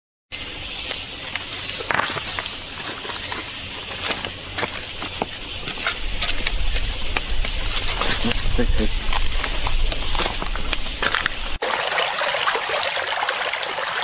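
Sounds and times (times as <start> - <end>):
footsteps on loose stones: 0.8 - 11.6
rocks clacking together: 1.8 - 11.6.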